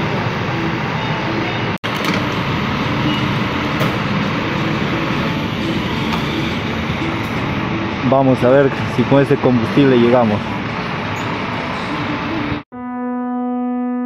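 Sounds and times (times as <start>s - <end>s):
fuel pump humming: 1.8s - 12.1s.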